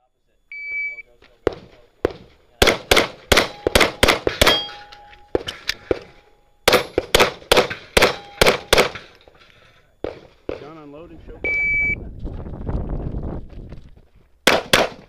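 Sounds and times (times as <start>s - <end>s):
rapid pistol shots: 1.4s - 4.8s, 5.4s - 9.2s, 14.4s - 15.0s
steel targets ringing: 3.2s - 9.4s.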